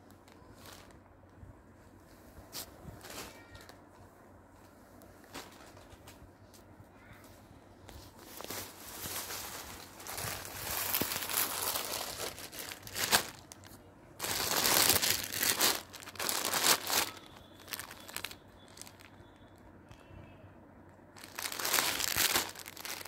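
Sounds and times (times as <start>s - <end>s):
plastic packaging crinkling: 8.0s - 19.6s, 21.2s - 23.0s.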